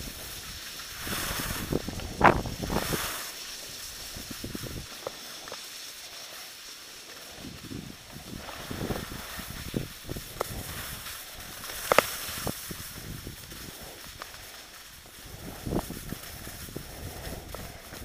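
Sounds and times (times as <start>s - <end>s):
wind on microphone: 0.0s - 3.3s, 3.9s - 4.9s, 7.3s - 14.4s, 15.0s - 18.0s
skis scraping over snow: 0.0s - 18.0s.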